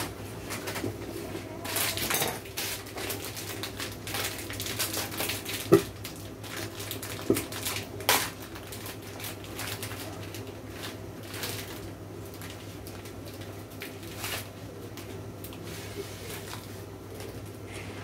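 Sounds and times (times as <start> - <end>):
plastic packet rustling: 0.5 - 18.0.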